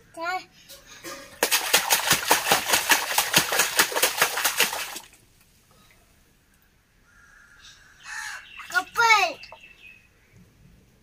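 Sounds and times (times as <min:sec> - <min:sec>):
child splashing water in basin: 0:01.1 - 0:05.2.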